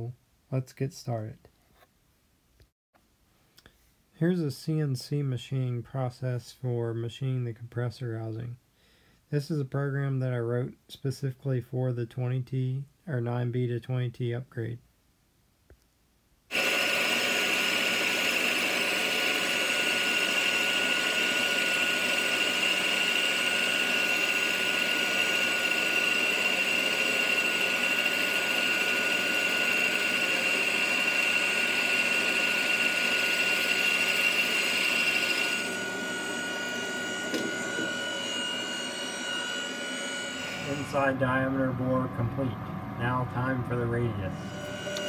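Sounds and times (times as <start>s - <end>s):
lathe high whine: 16.5s - 45.0s.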